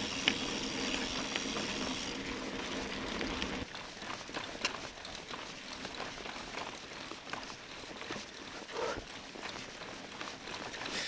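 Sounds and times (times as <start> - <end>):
bicycle tyres rolling on dirt: 0.0 - 11.0
bike clicks and rattles: 0.0 - 11.0.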